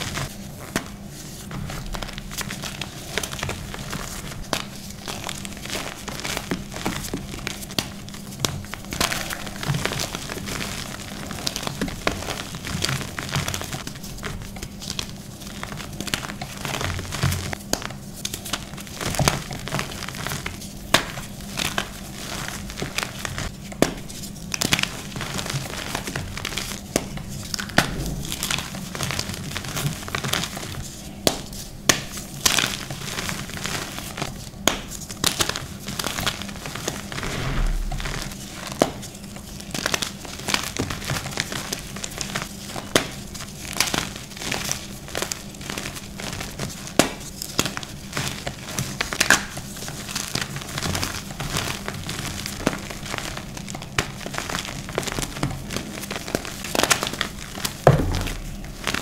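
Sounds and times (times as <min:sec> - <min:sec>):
hands crushing chalk chunks: 0:30.5 - 0:36.1.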